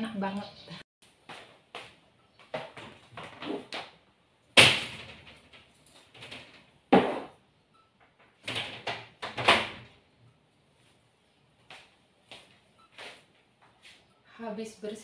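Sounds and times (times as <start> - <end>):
door banging shut: 4.6 - 5.5, 8.4 - 9.9.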